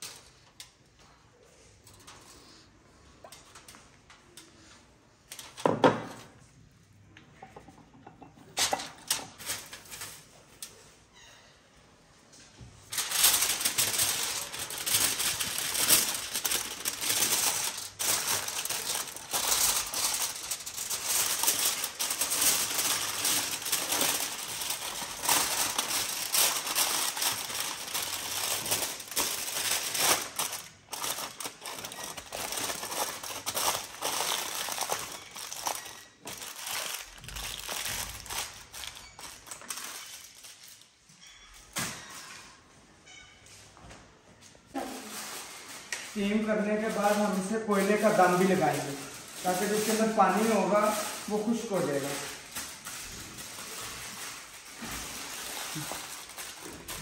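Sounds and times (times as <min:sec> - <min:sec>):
aluminium foil crinkling: 0:00.0 - 0:05.6, 0:07.5 - 0:11.3, 0:12.8 - 0:42.4, 0:44.7 - 0:57.0.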